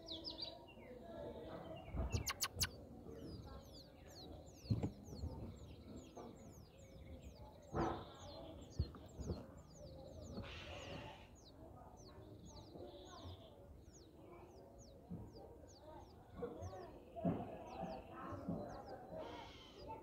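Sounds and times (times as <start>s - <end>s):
nestlings chirping: 1.8s - 11.6s.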